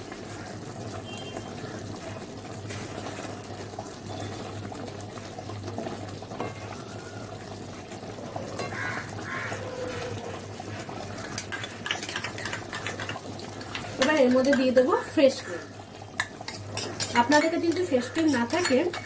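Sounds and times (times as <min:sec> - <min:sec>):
thick gravy bubbling: 0:00.0 - 0:19.0
wooden spatula stirring: 0:11.2 - 0:14.9, 0:16.2 - 0:19.0.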